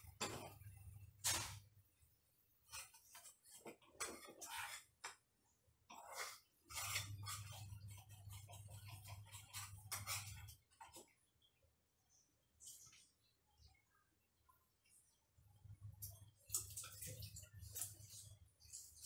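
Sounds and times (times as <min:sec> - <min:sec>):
utensil scraping frying pan: 0:00.0 - 0:01.7, 0:02.6 - 0:05.1, 0:05.9 - 0:11.1.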